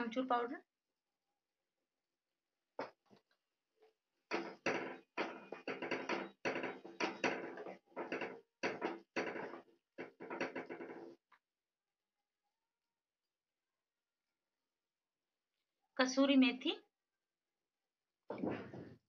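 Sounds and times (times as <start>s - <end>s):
spatula scraping metal pan: 4.3s - 11.2s
spatula tapping pan: 4.3s - 11.2s.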